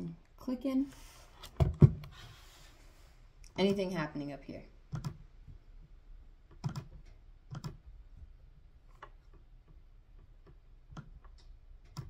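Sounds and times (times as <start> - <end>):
computer clicks: 4.9 - 5.2, 6.5 - 7.8.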